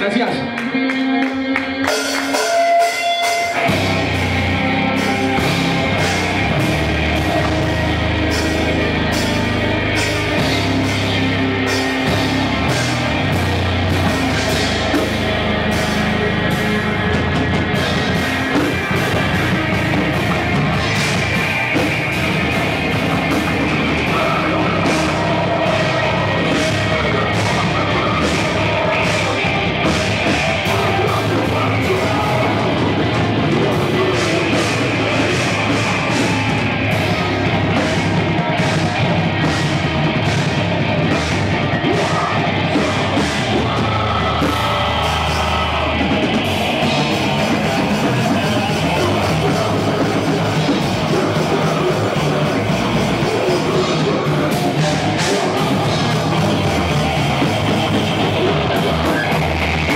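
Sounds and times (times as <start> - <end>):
metalcore band playing live: 0.0 - 59.9.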